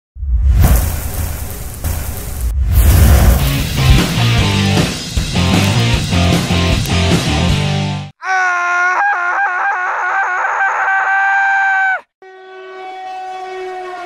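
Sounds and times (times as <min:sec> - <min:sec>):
rock guitar music: 0:03.4 - 0:08.1
lower horn chord: 0:12.2 - 0:14.0
train air horn blasts: 0:12.2 - 0:14.0.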